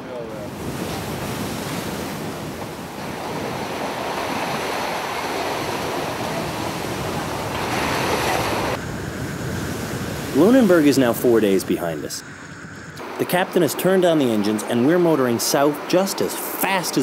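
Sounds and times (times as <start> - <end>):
wind buffeting microphone: 0.0 - 13.1
wind and sea rushing: 0.0 - 17.0.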